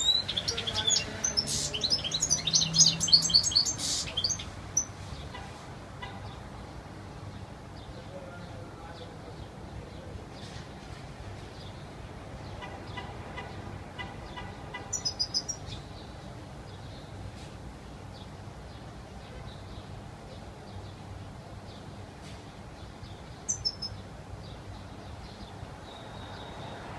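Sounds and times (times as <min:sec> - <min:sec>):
goldfinch chirping: 0:00.0 - 0:04.9, 0:14.8 - 0:16.2, 0:23.0 - 0:24.0.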